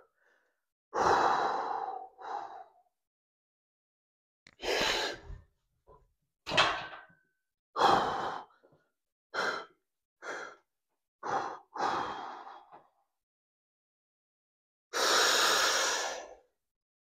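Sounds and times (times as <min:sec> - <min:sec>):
man breathing forcefully: 0:00.2 - 0:02.8, 0:07.8 - 0:08.6, 0:09.3 - 0:10.6, 0:11.2 - 0:12.9, 0:15.0 - 0:16.4.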